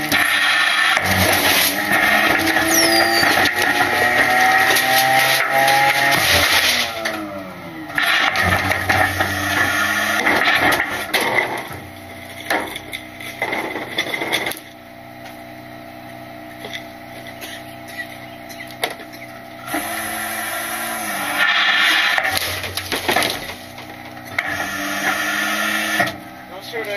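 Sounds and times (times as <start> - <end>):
trash cracking and crunching: 0.0 - 14.8, 21.4 - 25.2
engine and hydraulics humming: 0.0 - 26.9.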